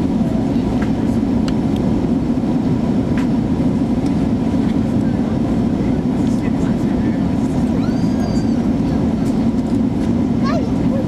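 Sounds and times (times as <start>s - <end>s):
airliner cabin roar: 0.0s - 11.0s.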